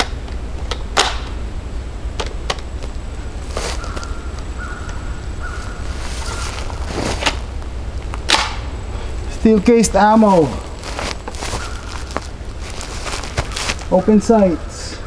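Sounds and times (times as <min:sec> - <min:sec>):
steady low rumble: 0:00.0 - 0:15.0
sharp ringing cracks: 0:08.2 - 0:08.8.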